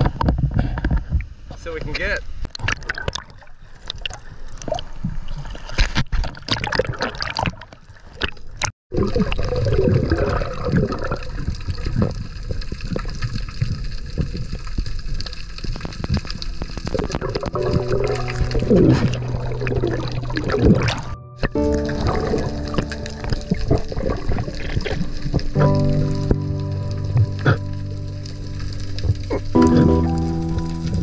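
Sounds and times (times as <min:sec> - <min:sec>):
muffled underwater rush and gurgle: 0:02.2 - 0:31.0
steady music tones: 0:16.6 - 0:31.0
seawater sloshing and splashing: 0:16.8 - 0:25.6.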